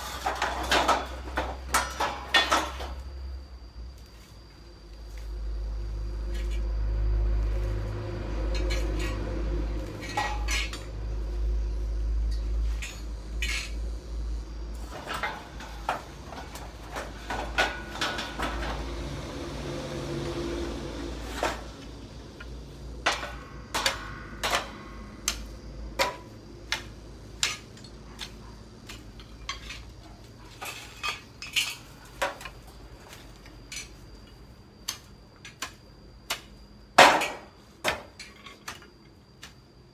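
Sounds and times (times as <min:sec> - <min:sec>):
scrap metal clinking and knocking: 0:00.0 - 0:03.1, 0:08.5 - 0:11.0, 0:12.3 - 0:13.8, 0:14.9 - 0:18.9, 0:22.4 - 0:25.4, 0:27.4 - 0:32.6, 0:37.0 - 0:38.9.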